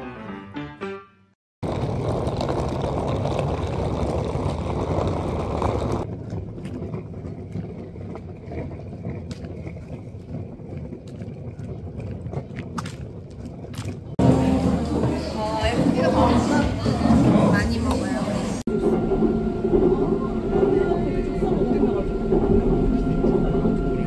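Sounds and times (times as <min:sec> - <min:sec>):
music outro: 0:00.0 - 0:01.4.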